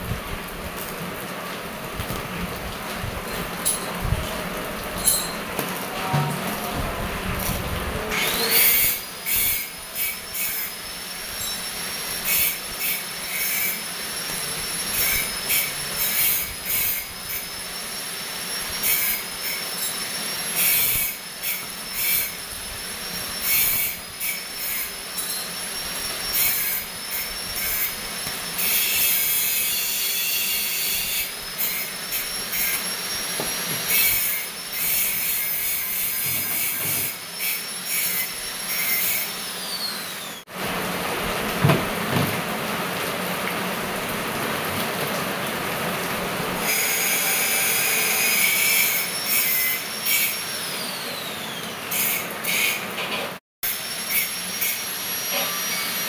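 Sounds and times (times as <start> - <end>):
welding arc crackling and sputtering: 0.0 - 42.0.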